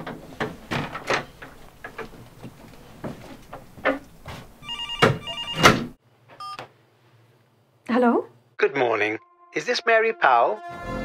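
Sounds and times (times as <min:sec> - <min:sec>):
irregular knocks and clatters: 0:00.0 - 0:05.2
telephone ringing electronic tones: 0:04.6 - 0:05.8, 0:06.4 - 0:06.7.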